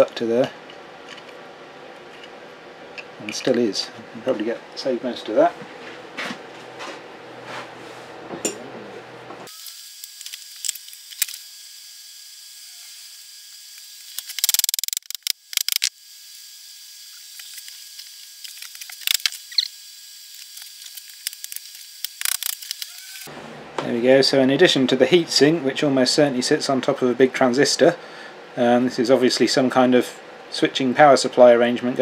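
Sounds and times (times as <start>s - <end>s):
hand tools clicking and scraping plastic: 14.1s - 15.9s.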